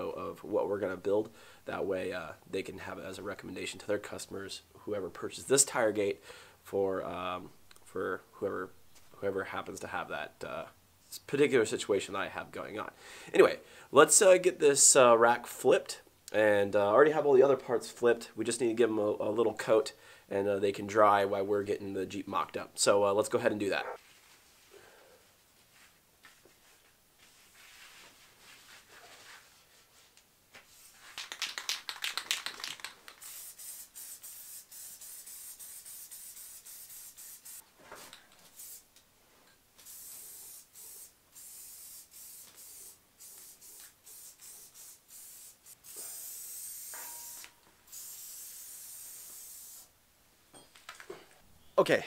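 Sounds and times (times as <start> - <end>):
spray can rattling: 30.8 - 37.6, 38.5 - 38.8, 39.8 - 47.0, 47.9 - 49.9
spray paint hissing: 32.2 - 37.6, 38.5 - 38.9, 39.8 - 49.9.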